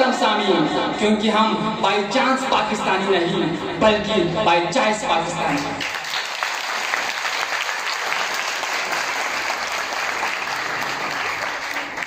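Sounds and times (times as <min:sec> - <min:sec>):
audience clapping: 0:05.5 - 0:12.0.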